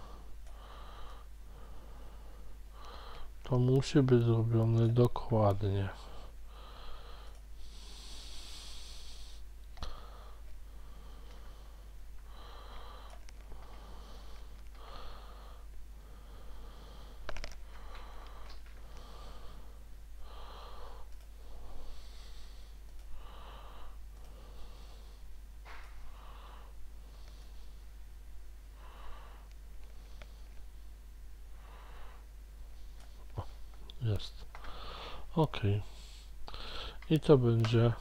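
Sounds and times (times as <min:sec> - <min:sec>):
person breathing close to microphone: 0:00.0 - 0:03.4, 0:06.0 - 0:28.0, 0:28.7 - 0:30.9, 0:34.5 - 0:37.1
steady low hum: 0:00.0 - 0:38.0.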